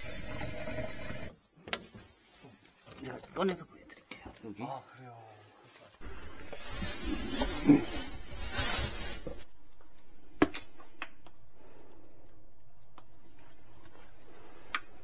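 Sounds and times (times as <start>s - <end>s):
plastic bag and hose rustling: 5.4s - 10.1s.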